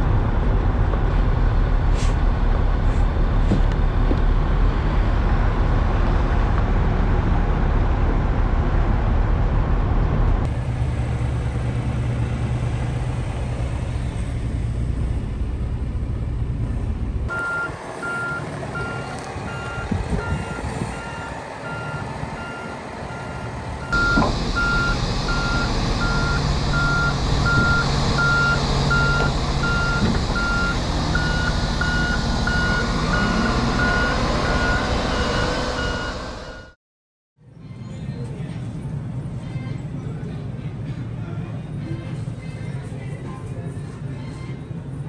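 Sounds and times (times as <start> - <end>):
diesel engine running: 0.0 - 36.8
truck engine idling: 9.0 - 36.8
reversing alarm beeping: 17.3 - 36.8.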